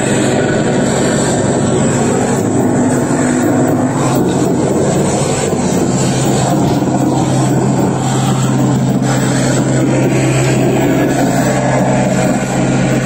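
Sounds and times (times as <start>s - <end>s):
distorted harsh noise music: 0.0s - 13.0s
low hum: 0.0s - 13.0s.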